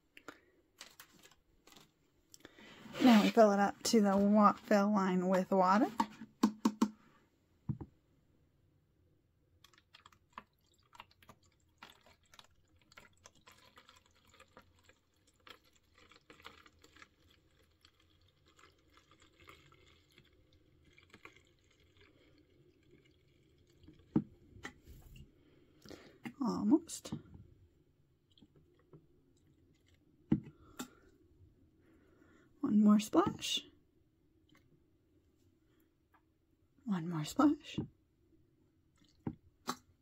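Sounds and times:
water trickling into plastic bottle: 0.2s - 2.6s, 9.6s - 24.8s, 28.2s - 31.1s, 38.9s - 40.0s.

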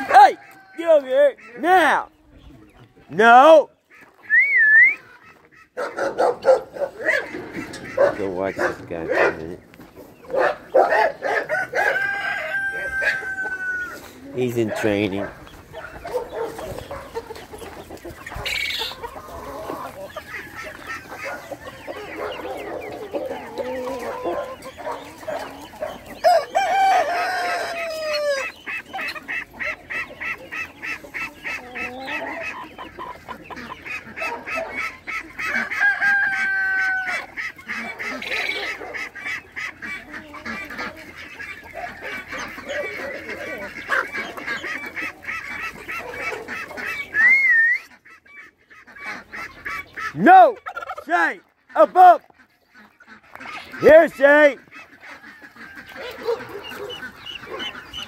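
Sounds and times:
chickens clucking: 0.0s - 58.0s
rooster crowing: 11.2s - 14.0s, 26.2s - 28.5s, 35.6s - 37.3s.

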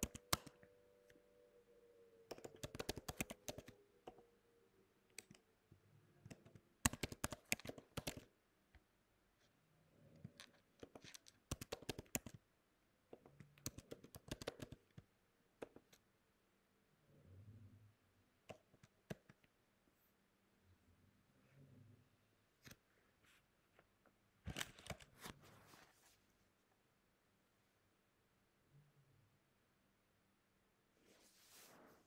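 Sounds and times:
typing on computer keyboard: 0.0s - 0.7s, 2.3s - 4.2s, 6.2s - 8.3s, 10.3s - 12.4s, 13.2s - 16.0s.

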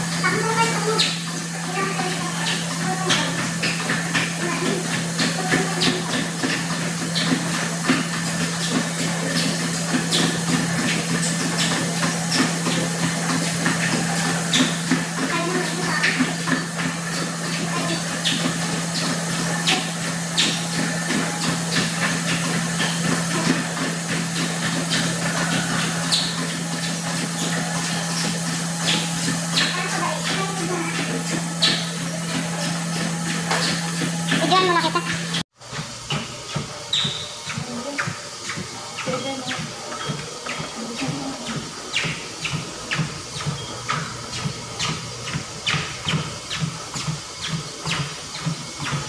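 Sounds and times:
treadmill motor hum: 0.0s - 49.0s
running feet thudding on belts: 0.2s - 35.4s.

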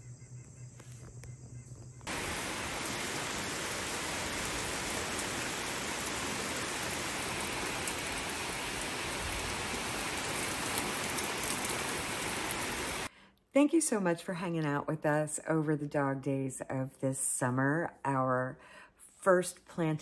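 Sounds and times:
heavy rain pouring: 2.1s - 13.1s.

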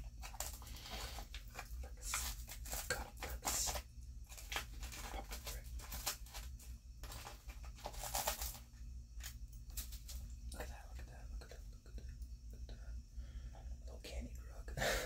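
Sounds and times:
candy packet crinkling: 0.0s - 10.3s.

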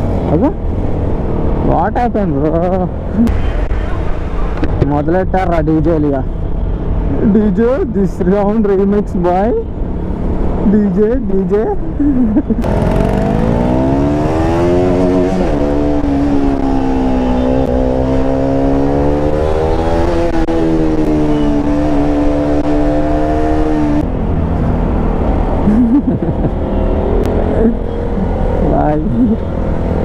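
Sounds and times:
road and traffic noise: 0.0s - 30.0s
motorcycle engine revving: 12.6s - 24.1s.

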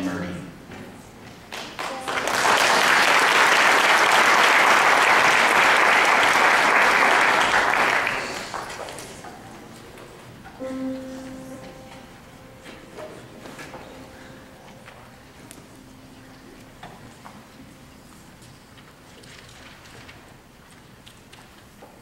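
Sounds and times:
audience applause: 1.5s - 9.3s
piano notes: 10.2s - 20.6s.

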